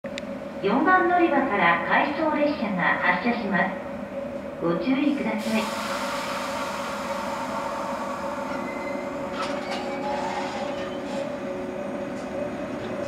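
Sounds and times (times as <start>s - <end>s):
electric train hum and whine: 0.0s - 13.0s
train clanks: 5.4s - 13.0s.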